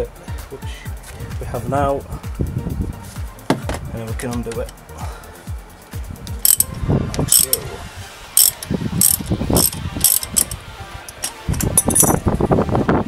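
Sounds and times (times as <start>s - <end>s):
socket ratchet clicking: 6.3s - 7.6s, 8.4s - 12.2s.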